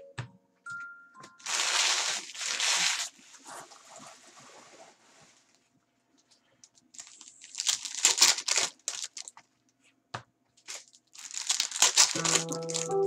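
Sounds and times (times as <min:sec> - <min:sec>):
foil wrapper crinkling and tearing: 0:01.4 - 0:03.2, 0:06.9 - 0:09.4, 0:10.6 - 0:13.0.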